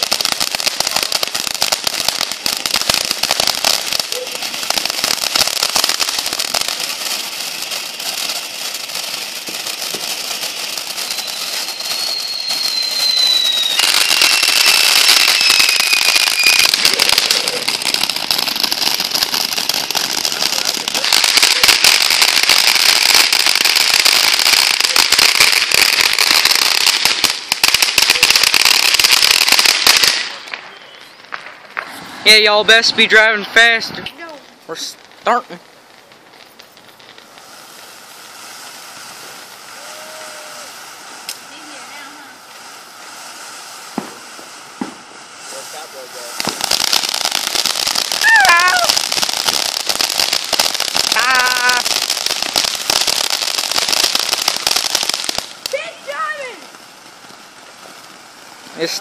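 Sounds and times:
firework fountain hissing and crackling: 0.0 - 59.0
firework whistle: 9.2 - 34.1, 37.4 - 56.8.

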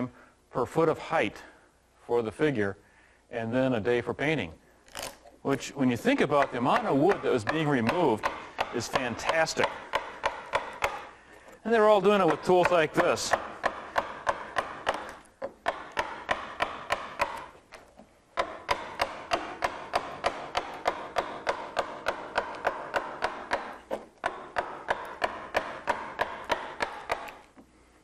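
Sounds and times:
mallet striking a chisel: 5.9 - 11.1, 11.8 - 17.6, 18.4 - 27.4.

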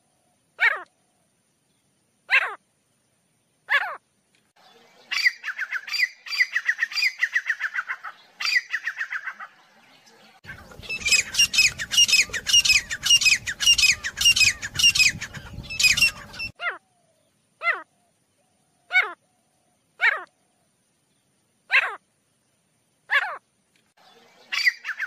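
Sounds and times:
bird calling: 4.7 - 9.6, 10.4 - 20.5, 24.1 - 25.0.

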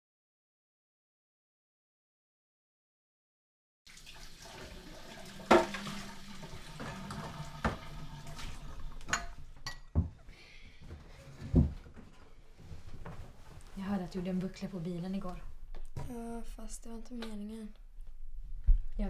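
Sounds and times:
dishes clattering: 5.4 - 10.2.

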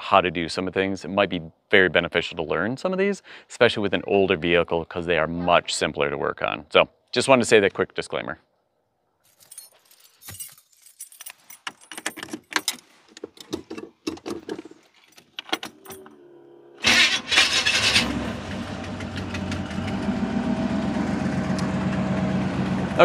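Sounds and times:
clicks and rustling: 9.3 - 16.1
engine starting and idling: 15.7 - 23.0.

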